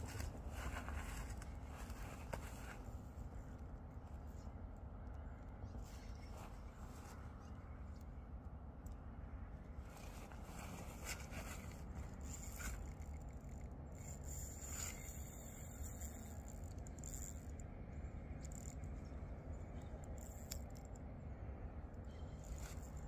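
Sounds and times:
fishing reel clicking and scraping: 0:10.0 - 0:21.1, 0:22.0 - 0:23.0.

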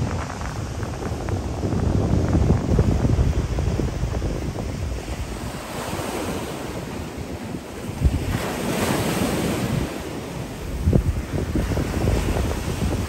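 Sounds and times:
wind gust thump: 0:00.0 - 0:07.0
surf washing onto beach: 0:00.0 - 0:13.0
wind rumble on microphone: 0:00.0 - 0:13.0.

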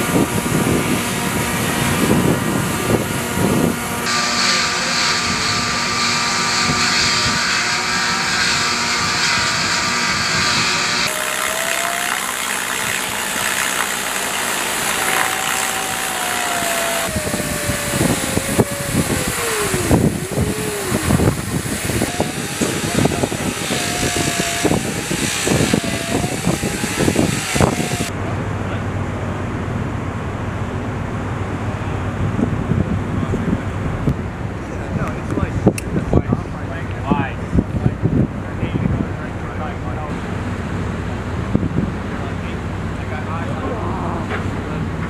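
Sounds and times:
wind buffeting microphone: 0:00.0 - 0:11.1, 0:14.8 - 0:28.6, 0:31.1 - 0:42.9
machinery hum: 0:00.0 - 0:35.4
wind: 0:00.0 - 0:45.0
water rushing: 0:11.1 - 0:24.7.

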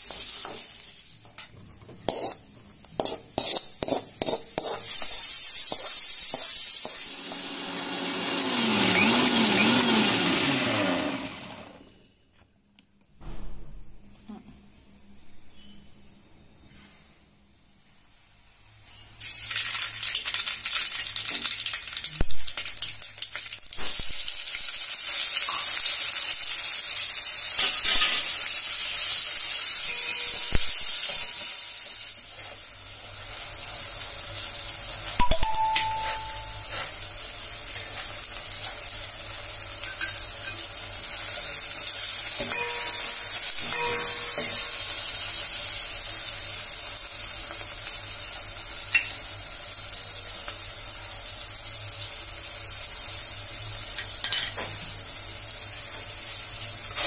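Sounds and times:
onions and tomato sizzling in oil: 0:00.0 - 0:09.9, 0:17.7 - 0:57.0
ladle stirring: 0:02.1 - 0:02.4.

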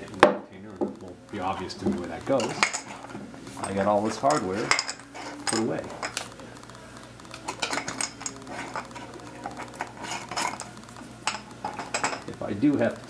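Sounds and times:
metal hardware clinking in glass jar: 0:03.6 - 0:06.2, 0:07.5 - 0:08.8, 0:09.5 - 0:12.3.

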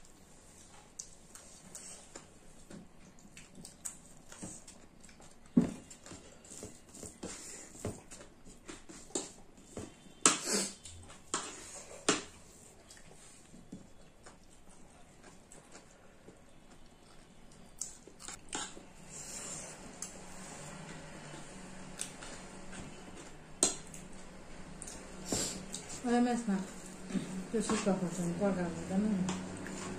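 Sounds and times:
chewing: 0:00.5 - 0:07.1, 0:10.7 - 0:18.9.

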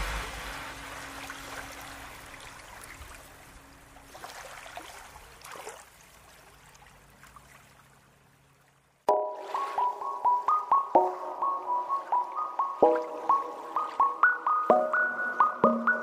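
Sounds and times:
faint hiss: 0:00.0 - 0:02.6
bright keyboard notes: 0:09.1 - 0:16.0
electronic music: 0:09.1 - 0:16.0.

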